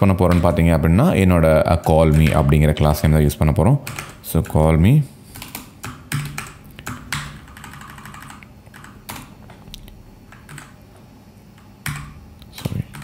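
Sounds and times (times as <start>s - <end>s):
typing on a computer keyboard: 3.8s - 4.2s, 5.4s - 10.8s, 11.6s - 13.0s.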